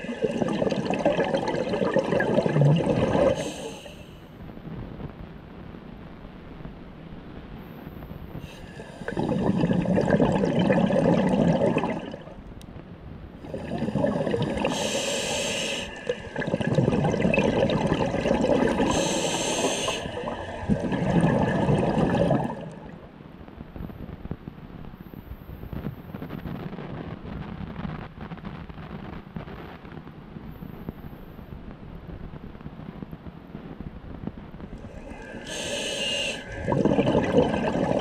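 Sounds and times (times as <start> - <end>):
diver exhaling bubbles underwater: 0.0 - 4.0, 8.7 - 12.4, 13.4 - 23.0, 34.8 - 38.0
regulator hiss: 14.7 - 16.3, 18.9 - 20.7, 34.8 - 36.8.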